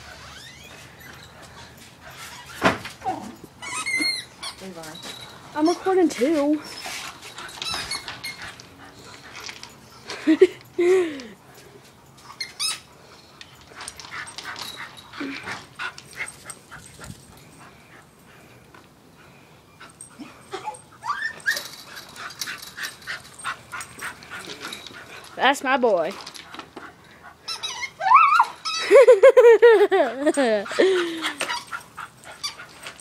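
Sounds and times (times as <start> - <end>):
dog whining: 0.0 - 4.6, 20.1 - 24.8, 27.4 - 29.0, 30.6 - 33.0.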